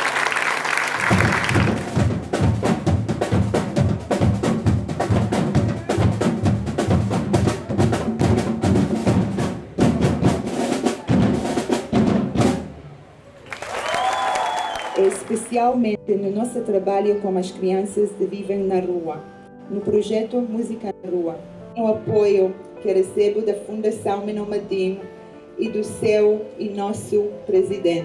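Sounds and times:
audience applause: 0:00.0 - 0:02.1, 0:13.4 - 0:15.5
drummers playing fast rhythm: 0:00.0 - 0:12.8.

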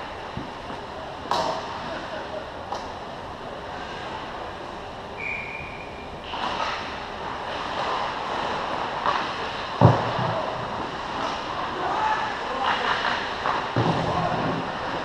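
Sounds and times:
distant skating: 0:00.0 - 0:15.0
thin whistle-like tone: 0:05.2 - 0:06.2
hockey stick noise: 0:05.2 - 0:15.0.

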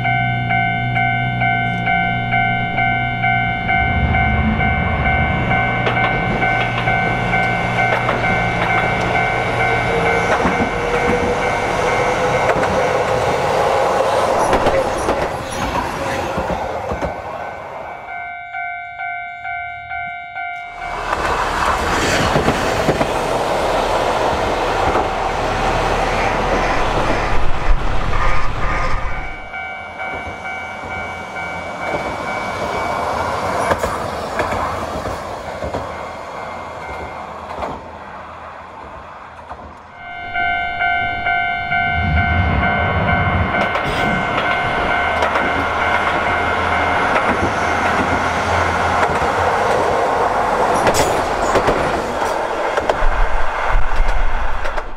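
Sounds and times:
level-crossing bell ringing: 0:00.0 - 0:12.9, 0:16.9 - 0:21.1, 0:29.1 - 0:33.8, 0:40.0 - 0:49.0
tram motor whine: 0:00.0 - 0:37.8, 0:39.8 - 0:54.9
wheel and rail clatter: 0:01.4 - 0:17.7, 0:40.8 - 0:54.9.

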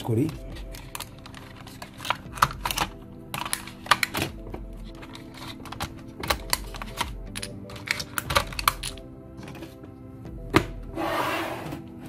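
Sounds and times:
faint background music: 0:00.0 - 0:12.0
plastic battery clicks and rattles: 0:00.2 - 0:09.1.

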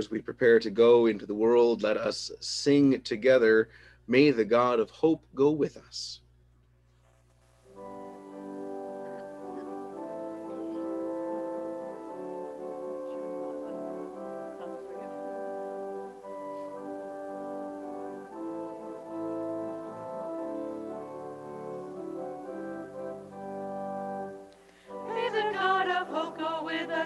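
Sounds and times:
sustained hymn chords: 0:07.7 - 0:27.0
voices singing a hymn: 0:07.8 - 0:27.0.

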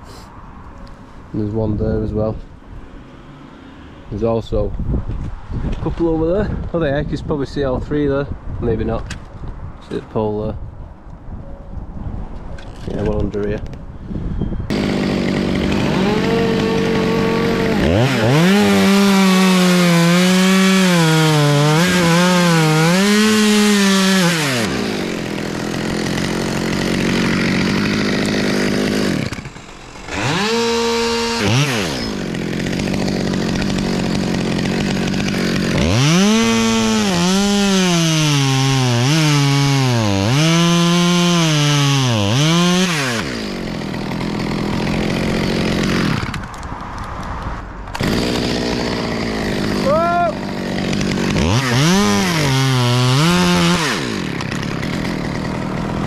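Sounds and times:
chainsaw cutting wood: 0:14.7 - 0:47.2, 0:47.9 - 0:56.0.

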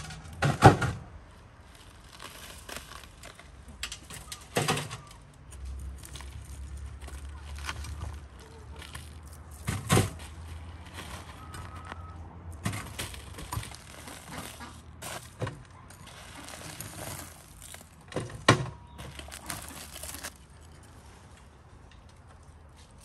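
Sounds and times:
crust crunching: 0:00.0 - 0:21.4
foil crinkling: 0:01.6 - 0:03.8, 0:12.8 - 0:18.1, 0:19.0 - 0:20.4.

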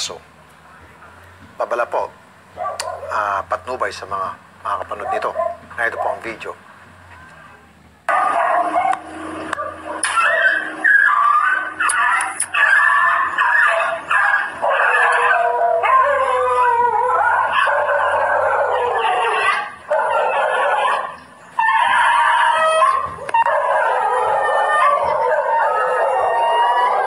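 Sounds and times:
dog yelping and howling: 0:04.9 - 0:05.6, 0:08.1 - 0:27.0.

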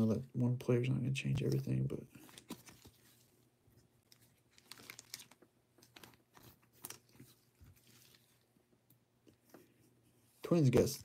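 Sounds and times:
trading cards clicking and rustling: 0:04.1 - 0:08.2.

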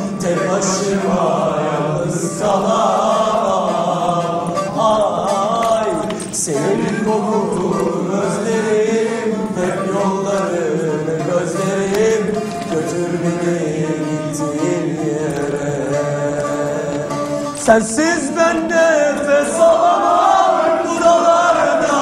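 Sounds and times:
men singing in unison: 0:00.0 - 0:22.0
musical accompaniment: 0:00.0 - 0:22.0.

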